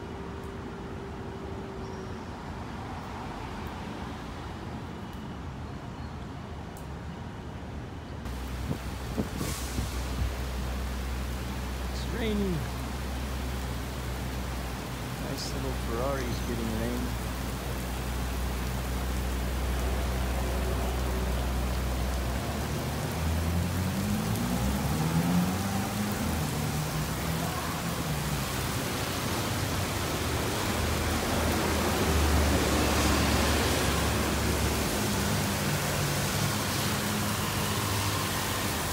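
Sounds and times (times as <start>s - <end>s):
traffic on wet road: 0.0s - 38.9s
heavy rain pouring: 8.2s - 38.9s
car accelerating: 23.0s - 27.9s.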